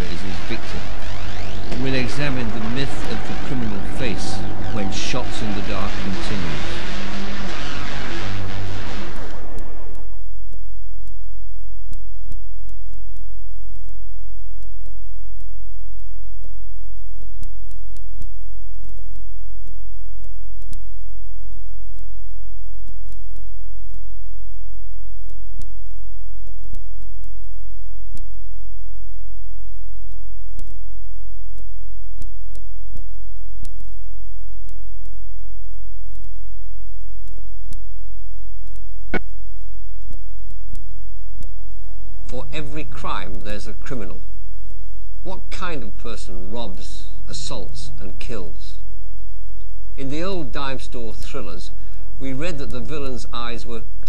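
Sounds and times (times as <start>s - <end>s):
faint high steady tones: 0.0s - 42.3s
low electrical hum: 0.0s - 54.0s.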